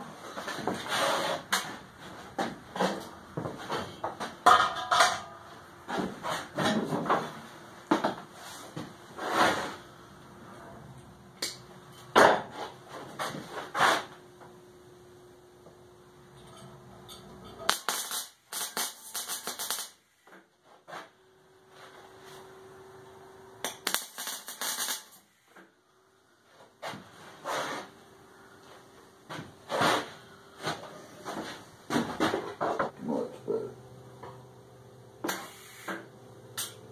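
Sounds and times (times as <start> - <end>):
faint steady hum: 1.5 - 36.9
crackling welding arc: 17.6 - 20.1, 23.6 - 25.3, 35.2 - 36.8.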